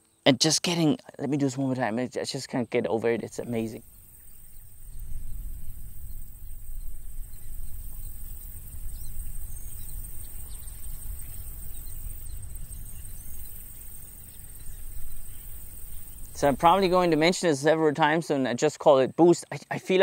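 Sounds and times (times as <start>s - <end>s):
faint bird chirps: 2.5s - 17.4s
low wind rumble on microphones: 3.6s - 17.3s.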